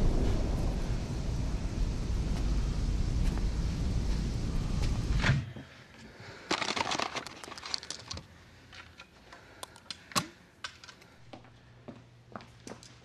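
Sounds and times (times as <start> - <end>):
loud rumble: 0.0 - 5.4.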